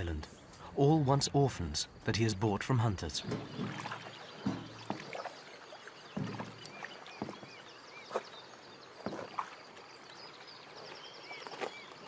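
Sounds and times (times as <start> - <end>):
pet carriers knocking on wooden boards: 3.2 - 5.1.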